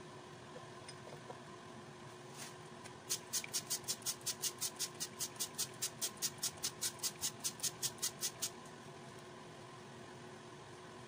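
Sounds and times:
shaker rattling: 0:03.1 - 0:08.6.

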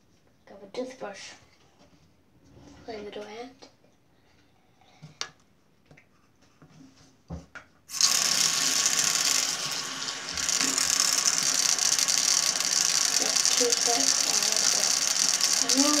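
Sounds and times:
electric toothbrush buzzing: 0:07.9 - 0:16.0.

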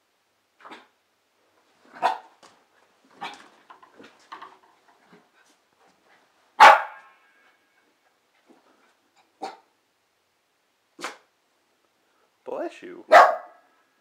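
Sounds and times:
puppy barking: 0:02.0 - 0:02.3, 0:06.6 - 0:07.1, 0:09.4 - 0:09.7, 0:13.1 - 0:13.7.

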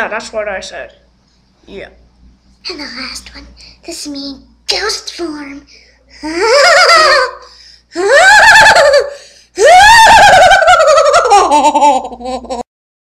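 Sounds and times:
child making ghost wails: 0:06.2 - 0:11.3.

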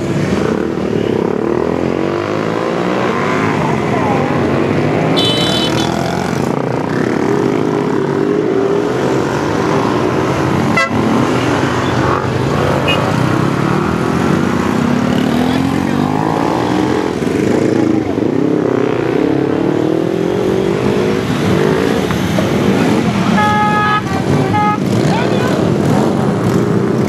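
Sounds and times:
motorcycle engines passing: 0:00.0 - 0:27.0.

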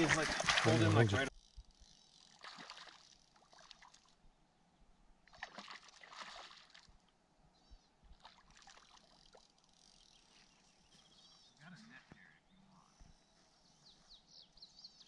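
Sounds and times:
water lapping at lake edge: 0:00.0 - 0:04.4, 0:05.1 - 0:10.9.

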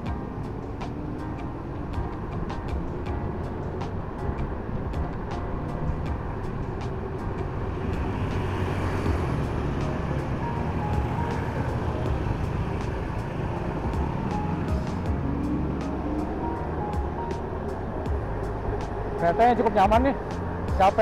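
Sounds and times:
low rumble: 0:00.0 - 0:19.2.

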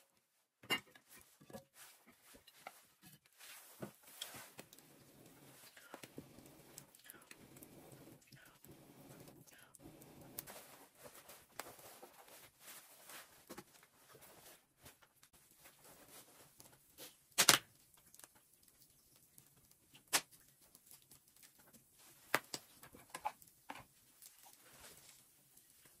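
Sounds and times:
wood fire crackling: 0:01.0 - 0:26.0
sharp pops from fire: 0:17.0 - 0:18.4, 0:19.9 - 0:21.6, 0:22.2 - 0:24.3.

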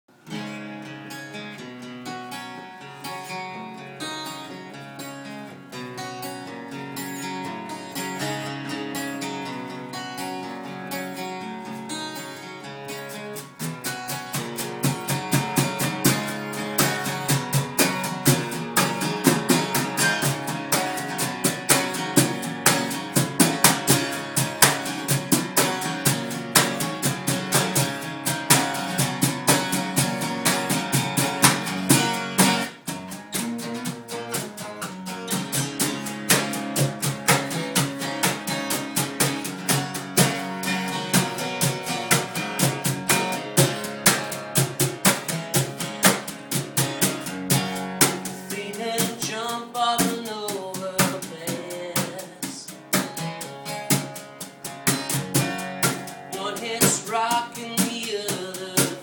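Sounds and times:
acoustic guitar strumming: 0:00.1 - 0:59.0
cajon struck with brush: 0:14.3 - 0:48.4, 0:51.0 - 0:56.2.

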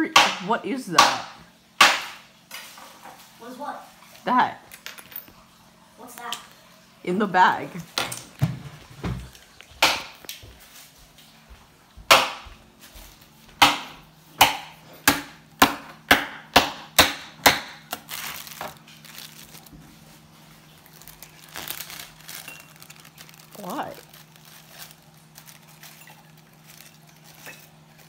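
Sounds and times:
knife chopping on cutting board: 0:12.1 - 0:12.6, 0:13.6 - 0:18.0.

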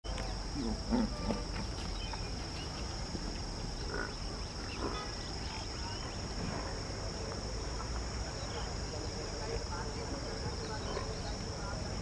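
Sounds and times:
continuous low rumble: 0:00.0 - 0:12.0
insects trilling: 0:00.0 - 0:12.0.

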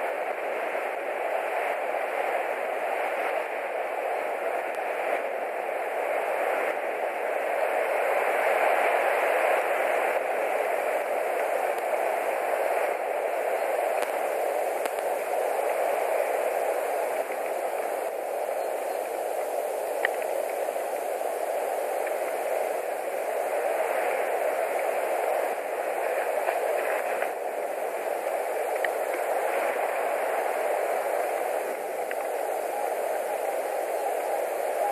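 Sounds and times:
rushing wind: 0:00.0 - 0:34.9
faint tick: 0:14.0 - 0:14.2, 0:14.8 - 0:15.1, 0:20.0 - 0:20.6, 0:28.7 - 0:29.3, 0:31.7 - 0:32.4.

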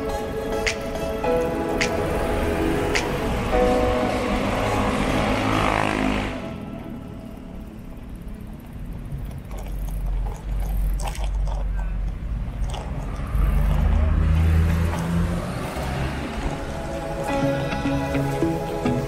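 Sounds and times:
car traffic passing: 0:00.0 - 0:19.0.

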